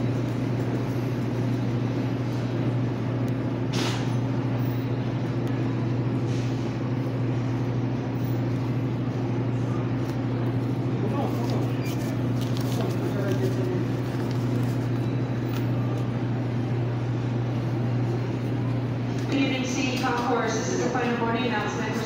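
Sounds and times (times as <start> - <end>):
refrigeration unit humming: 0.0 - 22.0.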